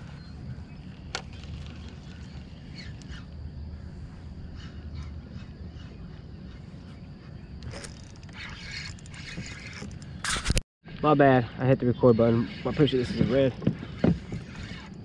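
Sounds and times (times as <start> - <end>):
sharp click: 9.8 - 10.6.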